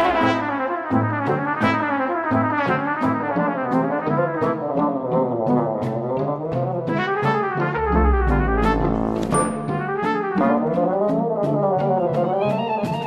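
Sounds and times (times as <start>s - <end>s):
upbeat background music: 0.0s - 13.0s.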